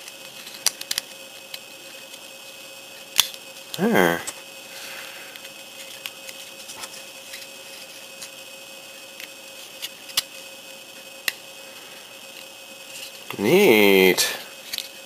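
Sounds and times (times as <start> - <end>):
small plastic parts clicking: 0.0 - 2.2, 14.6 - 15.0
faint steady hum: 0.0 - 15.0.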